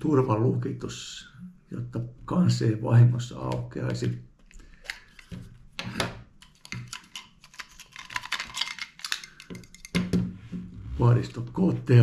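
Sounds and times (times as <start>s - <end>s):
hard plastic clicking and rattling: 4.4s - 10.2s.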